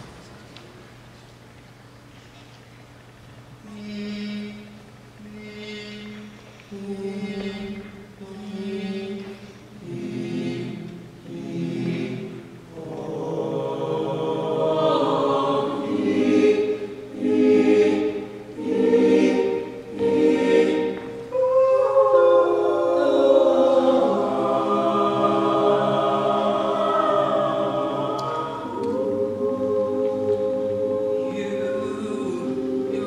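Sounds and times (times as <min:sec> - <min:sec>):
male group singing in harmony: 0:06.8 - 0:33.0.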